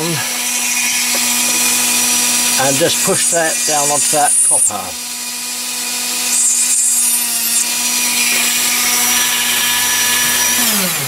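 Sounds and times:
rotary tool grinding metal: 0:00.0 - 0:11.0
rotary tool whining: 0:00.0 - 0:11.0.

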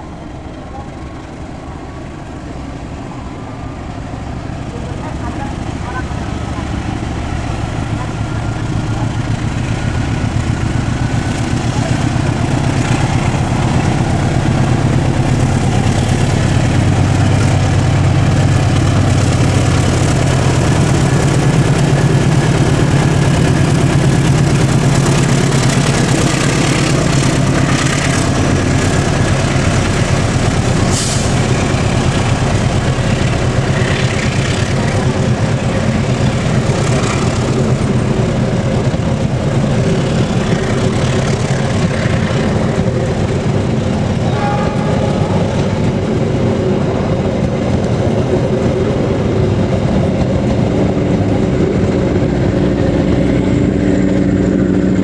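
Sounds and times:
diesel locomotive engine drone: 0:00.0 - 0:55.0
train coaches rolling on rails: 0:00.0 - 0:55.0.

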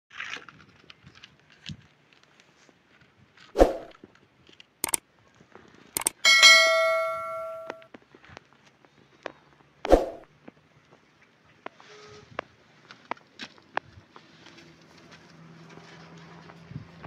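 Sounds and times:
sharp mouse clicks: 0:06.0 - 0:06.2
bright bell ding: 0:06.0 - 0:07.8.

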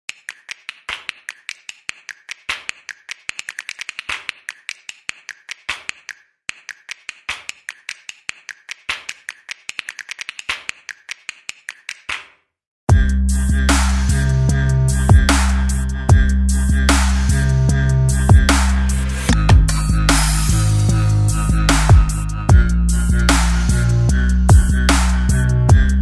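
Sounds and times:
rhythmic clicking percussion: 0:00.1 - 0:12.3, 0:13.7 - 0:26.0
heavy electronic music: 0:12.9 - 0:26.0.

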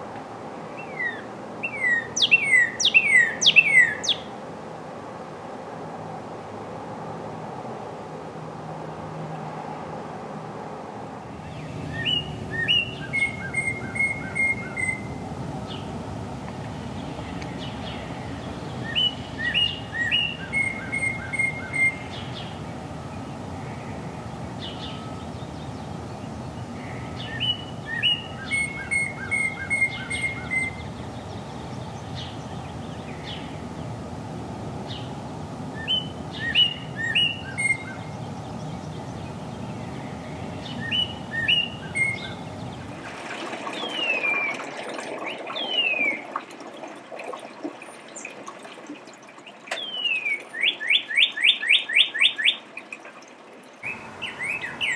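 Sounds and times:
low background noise: 0:00.0 - 0:54.9
cardinal singing whistles: 0:00.8 - 0:04.2, 0:11.6 - 0:15.9, 0:18.8 - 0:23.3, 0:24.2 - 0:33.4, 0:35.8 - 0:38.2, 0:40.0 - 0:42.6, 0:53.9 - 0:54.9.

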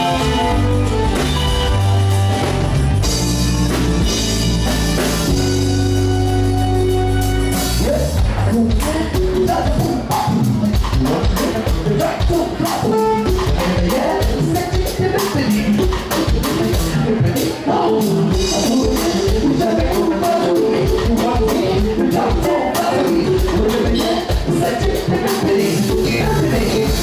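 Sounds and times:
live band playing dance music: 0:00.0 - 0:27.0
person singing: 0:07.8 - 0:27.0.

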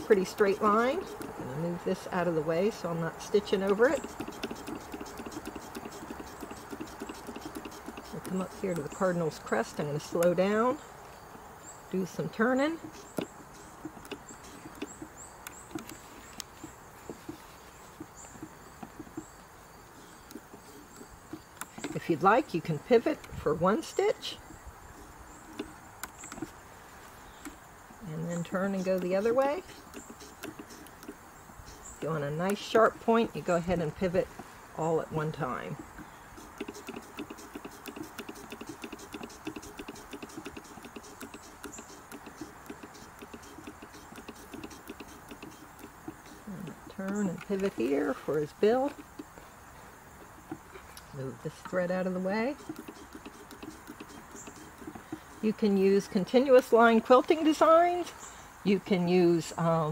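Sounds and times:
insect chirping: 0:00.0 - 0:59.9
sewing machine mechanical clicks: 0:03.3 - 0:10.4, 0:36.4 - 0:49.3, 0:52.5 - 0:55.7.

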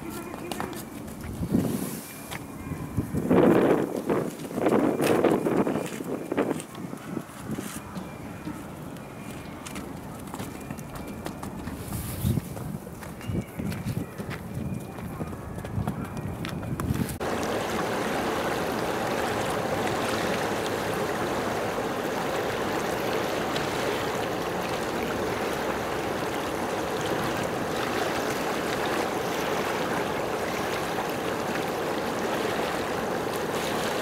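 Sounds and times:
running water rushing: 0:17.2 - 0:34.0.

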